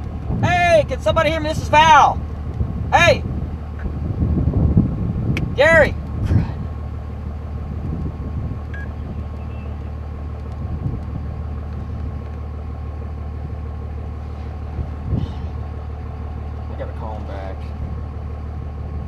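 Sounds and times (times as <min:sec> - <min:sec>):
vehicle engine idling: 0:00.0 - 0:19.0.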